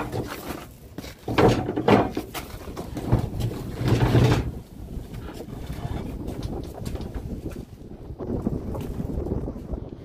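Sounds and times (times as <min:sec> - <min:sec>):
wooden block scraping on gravel: 0:00.0 - 0:07.7.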